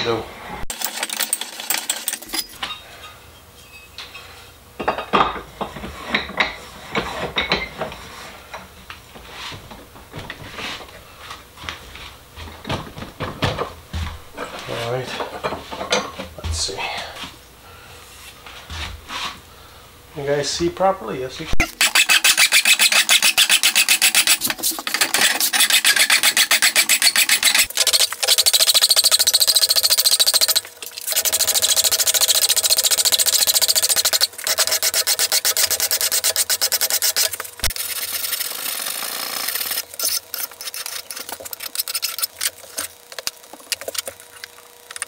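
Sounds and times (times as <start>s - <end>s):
file rasping on metal: 21.8s - 27.7s, 31.2s - 42.9s.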